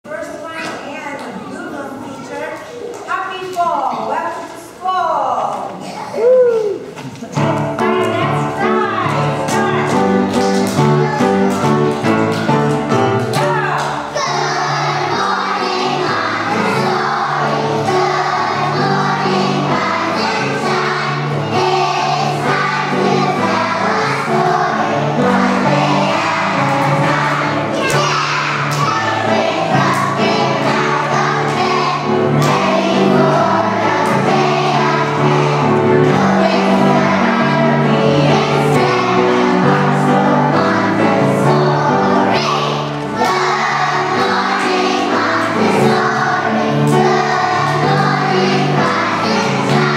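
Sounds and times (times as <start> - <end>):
piano accompaniment: 6.8 - 49.9
children singing: 14.0 - 49.9.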